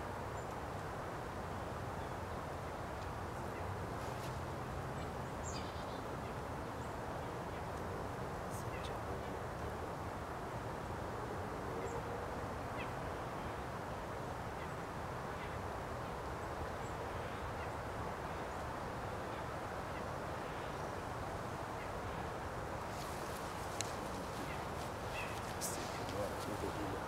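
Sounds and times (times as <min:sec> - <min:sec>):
low hiss and rumble: 0:00.0 - 0:27.0
faint high bird calls: 0:22.9 - 0:27.0.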